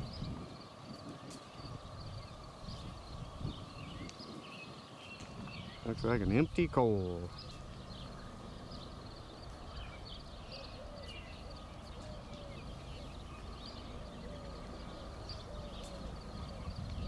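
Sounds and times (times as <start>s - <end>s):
distant diesel locomotive rumble: 0.0s - 4.1s, 5.2s - 17.0s
songbirds chirping: 0.0s - 17.0s.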